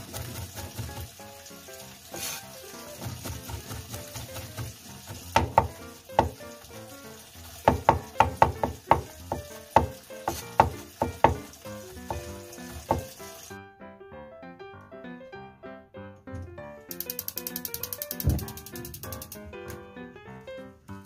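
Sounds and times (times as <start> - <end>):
soft background music: 0.2 - 21.0
cleaver chopping on wooden board: 3.0 - 6.4, 7.7 - 11.5.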